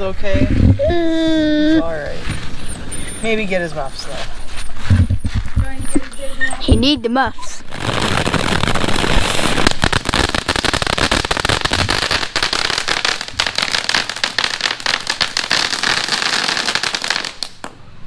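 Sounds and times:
firework crackling: 7.5s - 17.8s.

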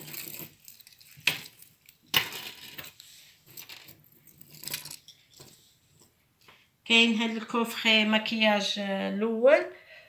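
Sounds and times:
metal chains clinking: 0.0s - 5.6s
jewellery rustling: 0.0s - 6.4s.

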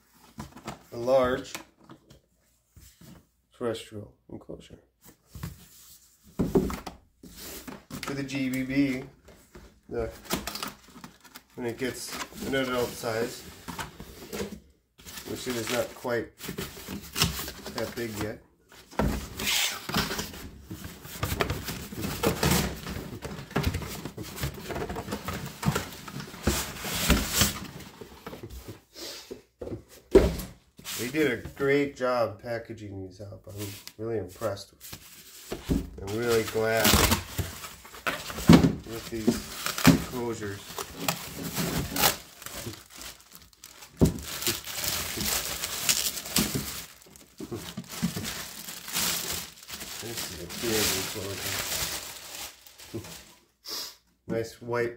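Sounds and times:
cardboard scraping and rustling: 5.3s - 28.8s, 34.8s - 53.3s
plastic packaging crinkling: 36.1s - 53.4s.

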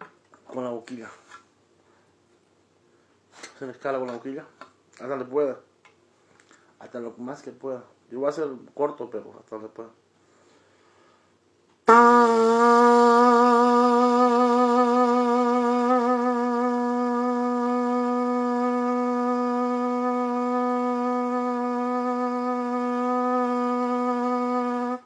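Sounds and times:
trumpet holding low note: 11.9s - 25.0s.

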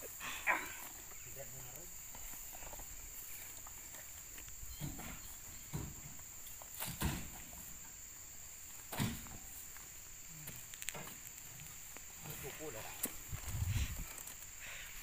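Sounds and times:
high insect drone: 0.0s - 15.0s
fruit bunches thumping into truck: 4.8s - 7.8s, 8.8s - 9.5s.

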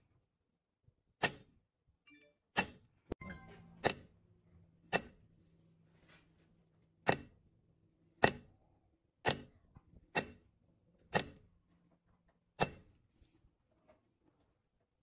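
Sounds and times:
hammer tapping metal punch: 2.6s - 4.2s, 4.9s - 5.2s, 7.0s - 7.4s, 8.2s - 8.5s, 9.2s - 10.5s, 12.6s - 12.9s.

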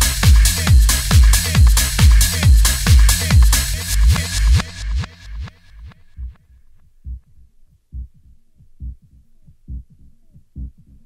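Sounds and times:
deep kick drum thumps: 0.0s - 5.5s.

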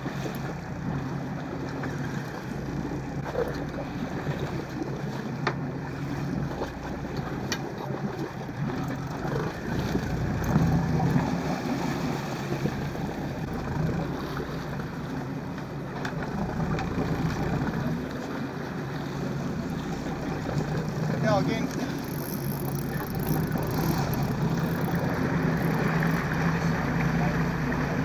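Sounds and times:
boat engine running: 0.0s - 28.0s.

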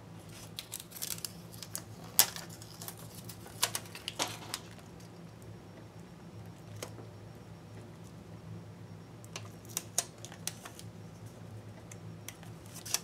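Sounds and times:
foil tape crinkling: 0.2s - 4.8s, 12.6s - 13.0s.

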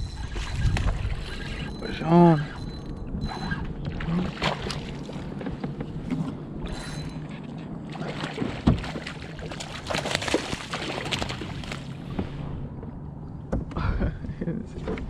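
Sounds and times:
water sloshing: 0.0s - 13.5s
fish thrashing and splashing: 4.0s - 5.4s, 7.9s - 12.0s
knock-like splash: 8.3s - 11.5s.

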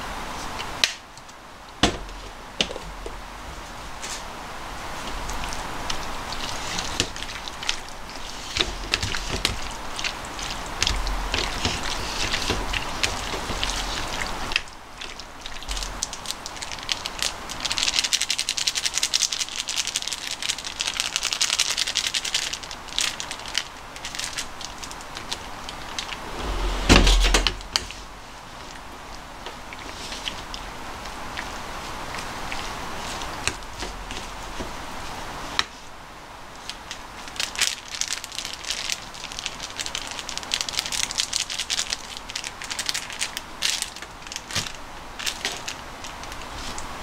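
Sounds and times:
loud knock: 26.2s - 28.0s.

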